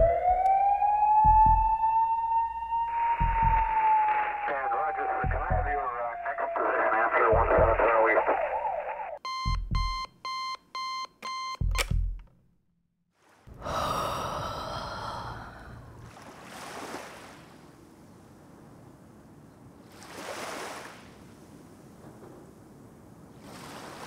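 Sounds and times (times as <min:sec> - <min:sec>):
alarm clock beeping: 0:01.2 - 0:04.0, 0:09.2 - 0:11.8
radio playing: 0:03.2 - 0:09.2
click and thump: 0:11.6 - 0:12.4
faint lapping surf: 0:13.2 - 0:24.0.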